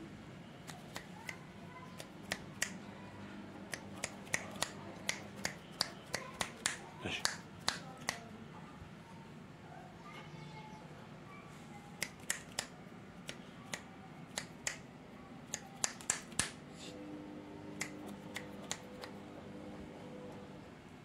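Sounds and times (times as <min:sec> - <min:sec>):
faint steady hum: 0:00.0 - 0:21.0
sharp clicks: 0:12.0 - 0:14.8, 0:15.5 - 0:16.6, 0:17.8 - 0:19.2.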